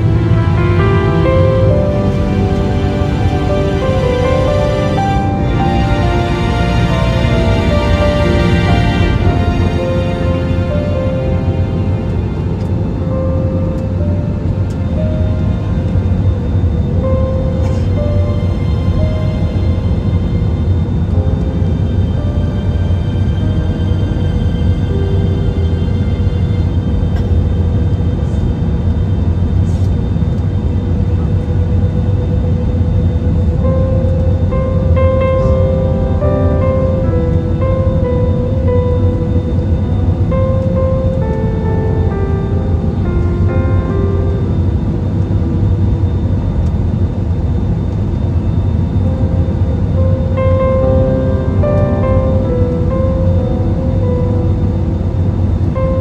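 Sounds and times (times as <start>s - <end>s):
airliner cabin rumble: 0.0s - 56.0s
slow background music: 0.0s - 56.0s.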